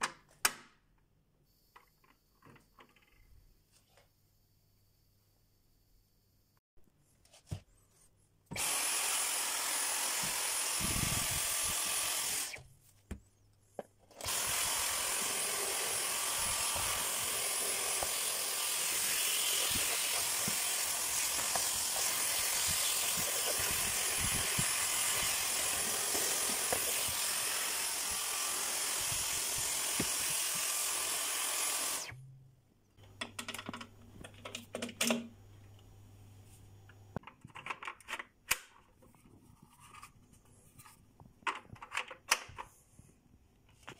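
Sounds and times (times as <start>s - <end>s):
vacuum motor whirring: 8.5s - 12.7s, 14.1s - 32.3s.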